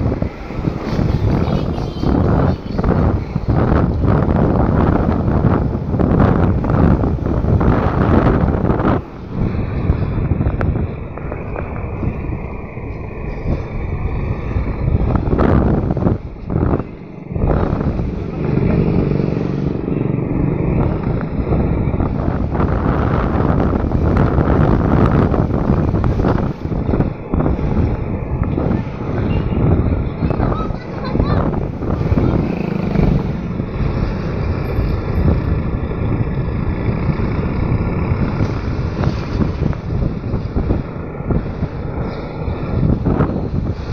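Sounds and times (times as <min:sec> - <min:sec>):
vehicle engine rumbling: 0:00.0 - 0:43.9
wind buffeting microphone: 0:00.0 - 0:43.9.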